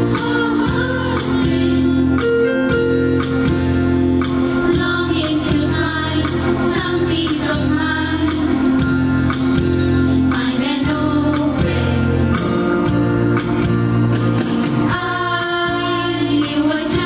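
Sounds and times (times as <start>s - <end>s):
girls' choir singing: 0.0s - 2.0s, 10.3s - 12.5s, 14.9s - 17.0s
instrumental accompaniment: 0.0s - 17.0s.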